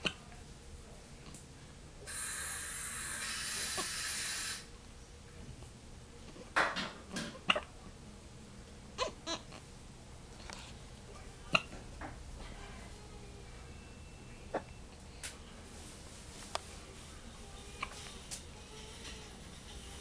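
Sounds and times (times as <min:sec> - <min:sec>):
steady hiss: 0:02.1 - 0:04.7.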